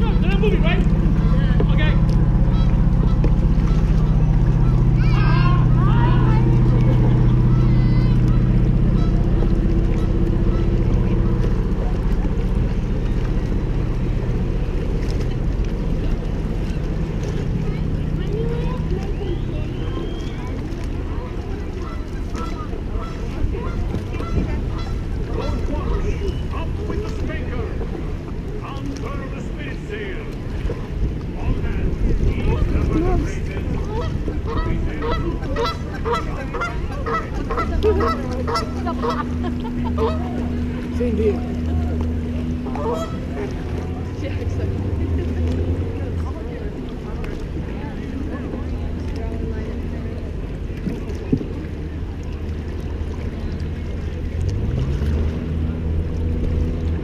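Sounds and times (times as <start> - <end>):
geese honking: 0.0 - 11.4, 21.8 - 26.3, 33.8 - 40.6, 42.6 - 43.5
paddles splashing: 0.0 - 57.0
steady low hum: 0.0 - 57.0
wind buffeting microphone: 0.0 - 57.0.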